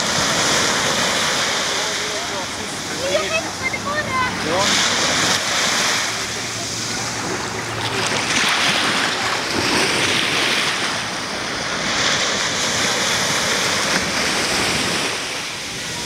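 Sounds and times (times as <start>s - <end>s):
sea waves breaking on beach: 0.0s - 16.0s.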